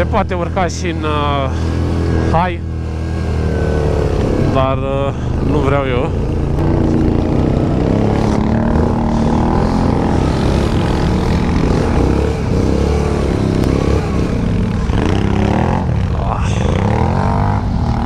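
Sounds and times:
atv engine under load: 0:00.9 - 0:18.0.

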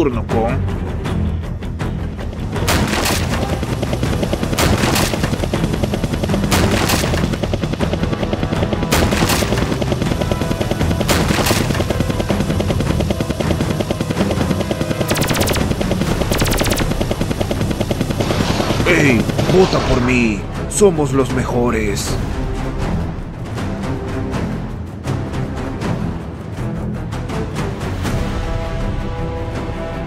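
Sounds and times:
helicopter rotor chop: 0:01.1 - 0:23.8
loud shots: 0:02.6 - 0:03.7, 0:04.6 - 0:05.4, 0:06.5 - 0:07.3, 0:15.1 - 0:17.1
machine-gun fire: 0:02.6 - 0:08.0, 0:08.9 - 0:10.4, 0:11.0 - 0:13.6, 0:14.2 - 0:20.1.

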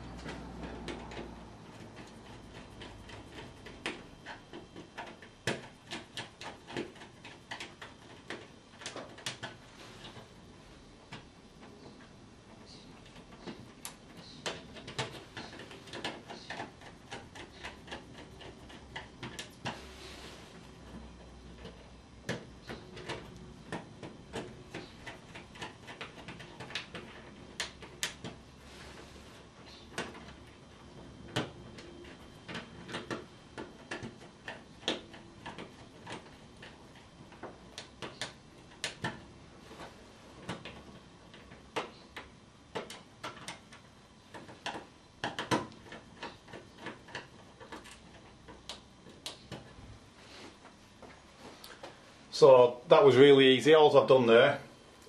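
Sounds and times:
fingers handling cables clicking: 0:00.0 - 0:10.2, 0:12.9 - 0:19.8, 0:20.8 - 0:28.4, 0:29.6 - 0:49.8.

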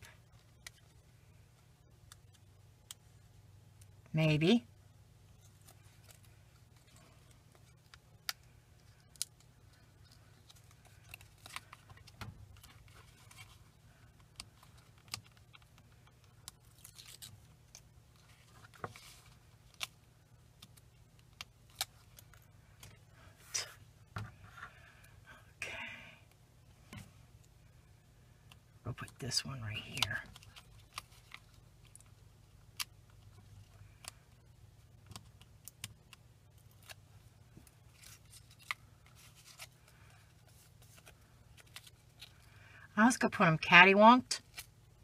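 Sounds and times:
paper rustles: 0:10.1 - 0:13.7, 0:37.9 - 0:42.4.

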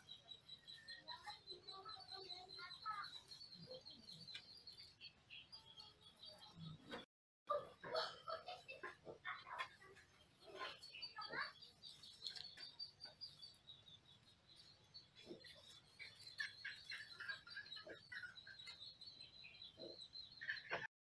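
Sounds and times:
mice squeaking: 0:00.0 - 0:20.9
mice scrabbling: 0:08.8 - 0:18.8.

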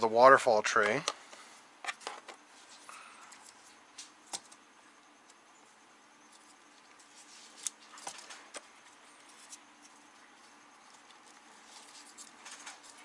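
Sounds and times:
plastic parts clicking and rustling: 0:10.8 - 0:13.0.

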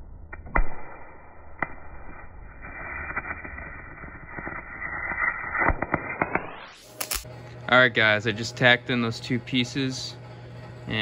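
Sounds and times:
sharp welding pops: 0:00.2 - 0:07.3
welding arc crackling: 0:01.4 - 0:07.3.

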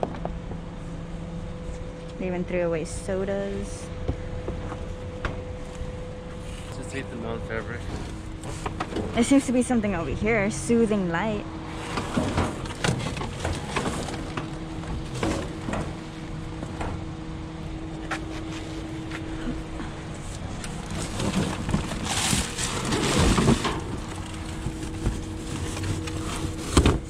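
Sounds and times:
low hum: 0:00.0 - 0:27.0
plastic bags crinkling: 0:20.6 - 0:26.6.

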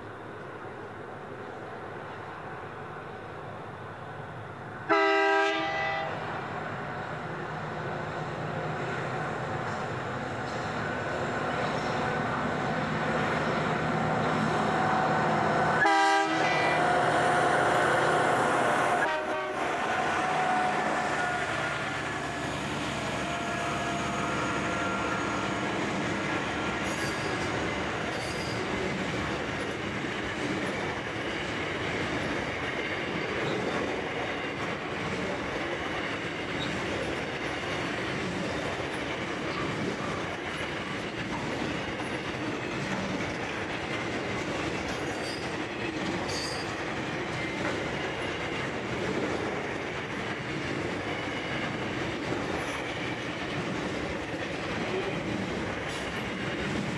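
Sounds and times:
freight train wagons rumbling on track: 0:00.0 - 0:56.9
train horn: 0:04.9 - 0:06.2, 0:15.7 - 0:26.0.

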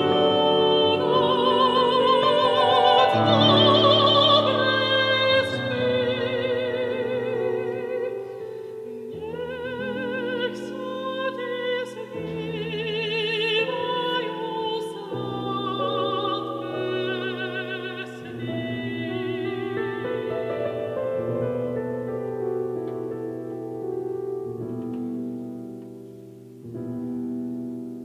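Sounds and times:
person singing operatically: 0:00.0 - 0:21.2
sustained piano chords: 0:00.0 - 0:28.0.

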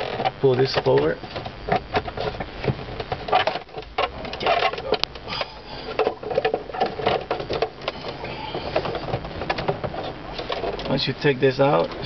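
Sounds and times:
plastic parts clicking and rattling: 0:00.0 - 0:11.0.

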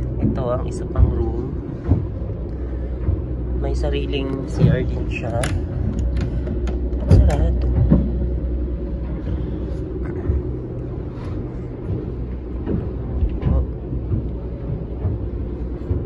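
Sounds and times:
low machinery drone: 0:00.0 - 0:16.0.

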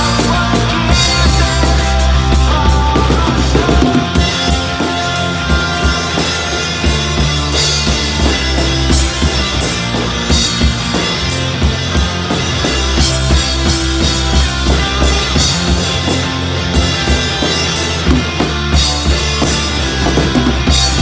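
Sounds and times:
drum kit playing a beat: 0:00.0 - 0:21.0
rock backing track: 0:00.0 - 0:21.0.

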